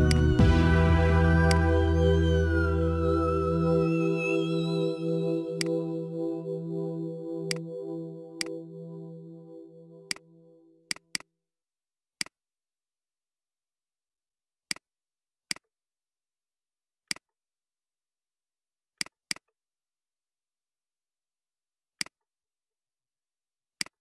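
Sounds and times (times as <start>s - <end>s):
synth background music: 0.0s - 10.8s.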